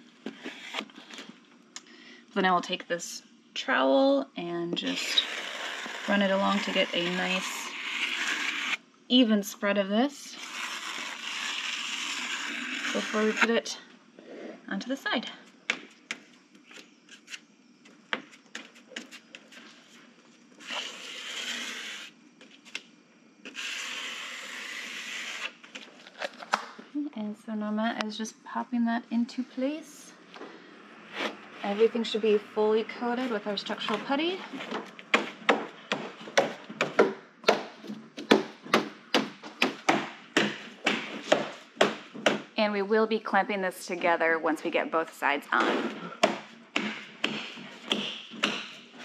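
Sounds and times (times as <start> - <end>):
trowel scraping putty: 4.9 - 8.8, 10.4 - 13.5, 20.6 - 22.1.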